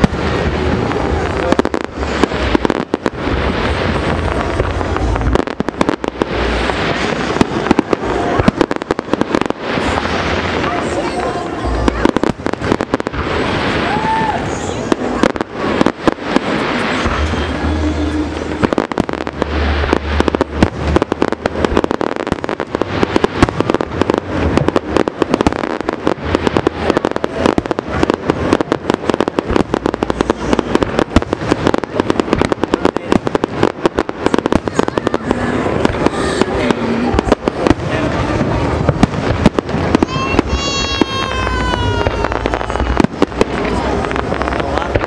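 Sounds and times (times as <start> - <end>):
fireworks crackling and banging: 0.0 - 45.0.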